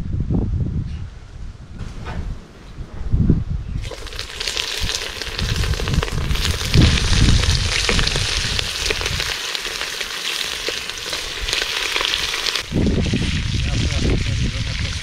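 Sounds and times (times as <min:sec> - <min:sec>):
meat sizzling in hot oil: 0:03.8 - 0:15.0.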